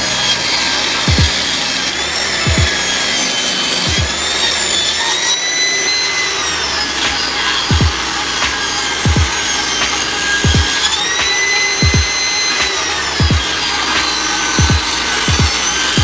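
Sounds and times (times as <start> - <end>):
background music with kick drum: 1.1 - 1.4, 2.5 - 2.8, 3.8 - 4.2, 7.1 - 16.0.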